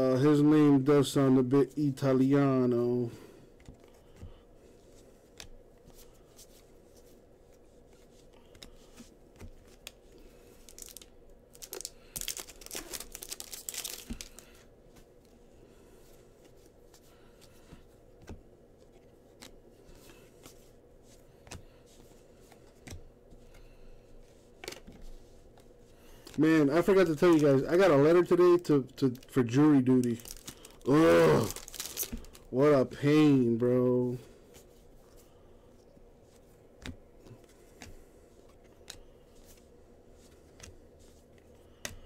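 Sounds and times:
cards clicking and tapping: 0:08.3 - 0:10.0, 0:17.6 - 0:20.6, 0:21.3 - 0:23.7, 0:36.8 - 0:39.6, 0:41.4 - 0:42.0
wrappers tearing and crinkling: 0:10.6 - 0:14.5, 0:29.0 - 0:32.5.

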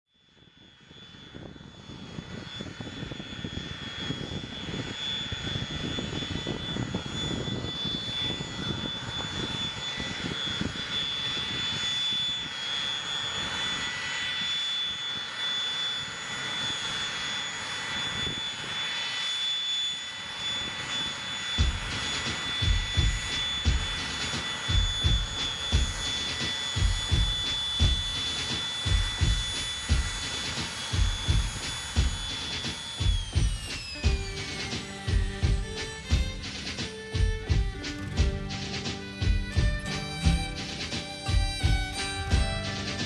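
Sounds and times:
jet engines idling: 0:00.4 - 0:43.0
low thumps: 0:33.0 - 0:43.0.

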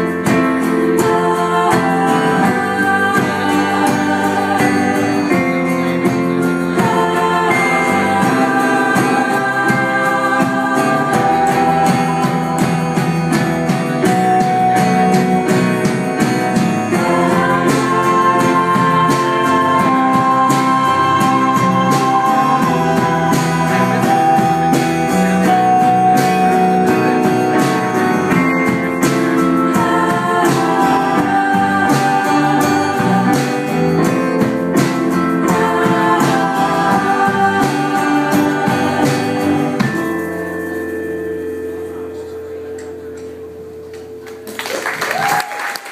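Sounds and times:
woman singing lead: 0:00.0 - 0:40.6
electric and acoustic guitars: 0:00.0 - 0:45.9.

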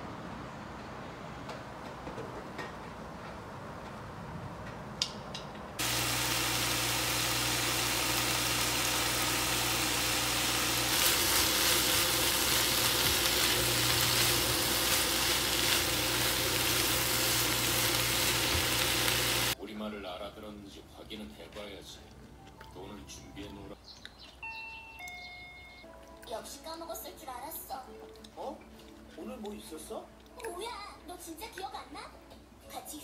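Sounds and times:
food sizzling in a frying pan: 0:05.8 - 0:19.6.

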